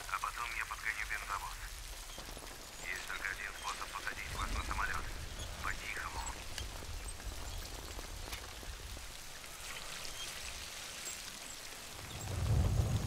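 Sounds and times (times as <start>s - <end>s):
heavy rain splashing: 0.0s - 13.0s
deep low rumble: 12.2s - 13.0s.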